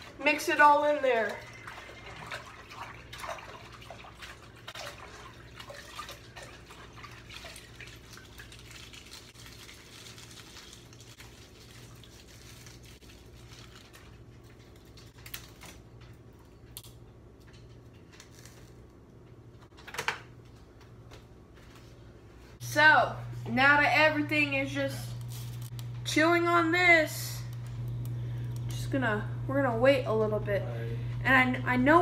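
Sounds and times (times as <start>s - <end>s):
water sloshing in pot: 0.0s - 15.2s
steady low hum: 20.4s - 32.0s.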